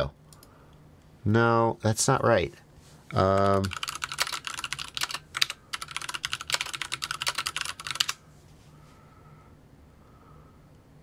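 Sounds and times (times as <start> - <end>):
computer keyboard typing: 3.1 - 8.2.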